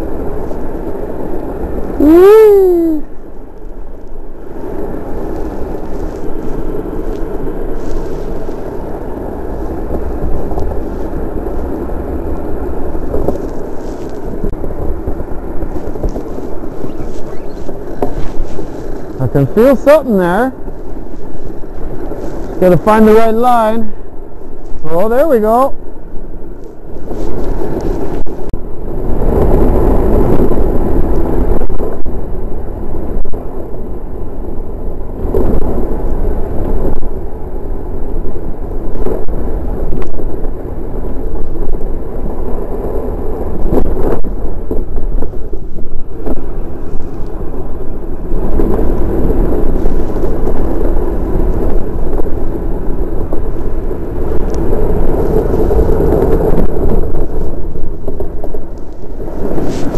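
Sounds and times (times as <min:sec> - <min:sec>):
wind rushing across microphone: 0:00.0 - 0:59.9
runners rumbling over ice: 0:43.5 - 0:59.9.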